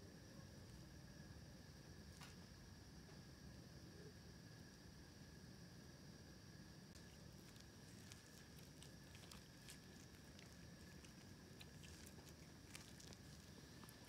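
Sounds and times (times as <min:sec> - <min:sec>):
steady background hum: 0:00.0 - 0:14.0
kitten eating clicks: 0:07.0 - 0:14.0.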